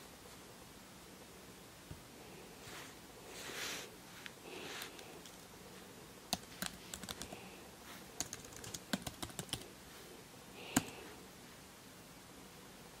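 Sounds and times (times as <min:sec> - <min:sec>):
typing on computer keyboard: 0:06.3 - 0:07.4, 0:08.2 - 0:09.7.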